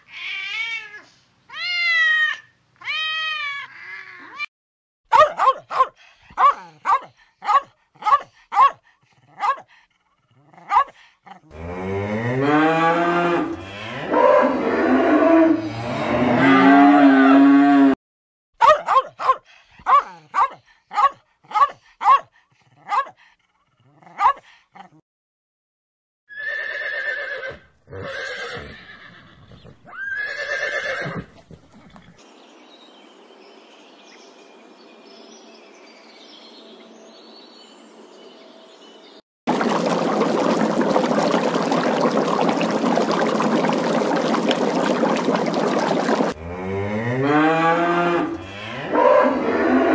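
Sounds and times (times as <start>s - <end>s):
cow mooing: 11.5s - 18.0s
water splashing: 39.5s - 46.4s.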